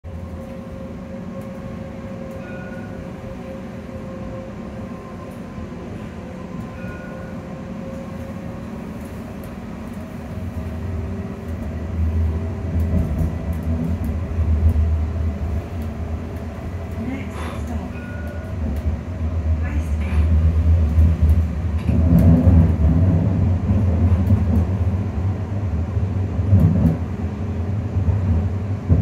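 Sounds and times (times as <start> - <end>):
tram motor hum and whine: 0.0 - 29.0.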